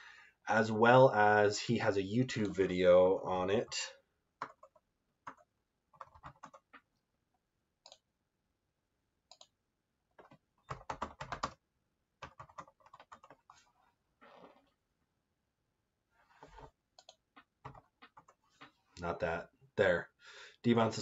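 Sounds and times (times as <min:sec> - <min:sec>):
typing on computer keyboard: 0:04.4 - 0:06.8, 0:10.2 - 0:11.6, 0:12.2 - 0:13.4, 0:17.0 - 0:18.4.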